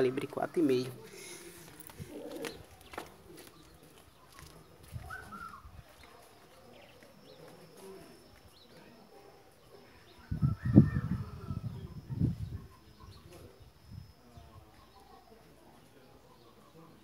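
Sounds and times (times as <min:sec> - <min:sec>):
footsteps on dirt: 0:00.0 - 0:08.8
faint bird calls: 0:05.0 - 0:08.9.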